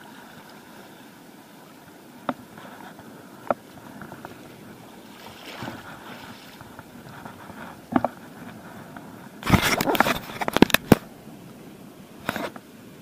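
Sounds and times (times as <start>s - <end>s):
shallow water wash: 0.0s - 13.0s
scraping and rustling: 3.8s - 8.8s, 9.4s - 11.0s.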